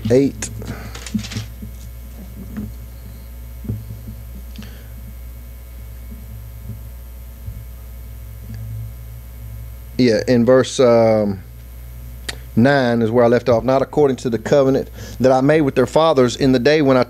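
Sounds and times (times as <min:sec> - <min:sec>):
paper pages rustling: 0:00.0 - 0:02.8
low electrical hum: 0:00.0 - 0:17.0.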